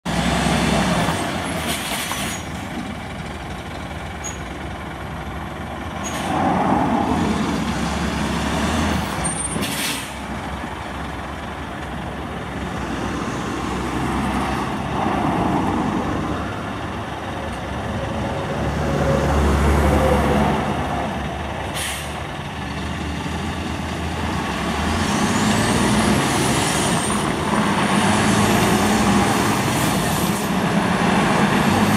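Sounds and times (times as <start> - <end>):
truck diesel engine running: 2.3 - 9.4, 10.0 - 31.9
air brake hisses: 9.6 - 10.3, 21.7 - 22.2.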